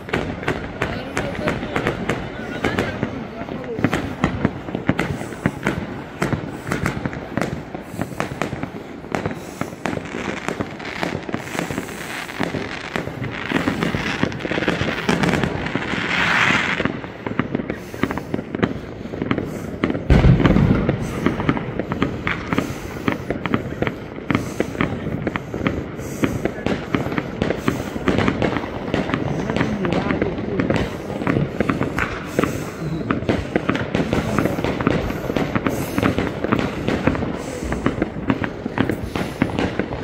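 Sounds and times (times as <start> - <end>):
fireworks bangs and crackling: 0.0 - 40.0
deep firework bang: 19.4 - 22.8.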